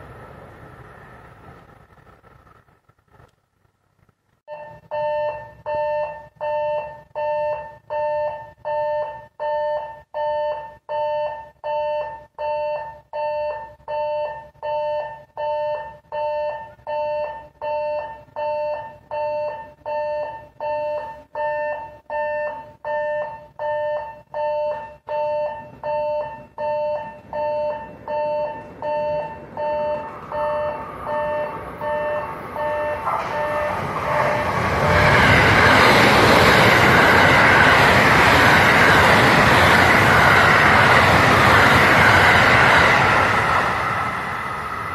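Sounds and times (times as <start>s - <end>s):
level-crossing warning bell ringing: 4.5s - 39.4s
approaching electric train rushing: 27.1s - 44.9s.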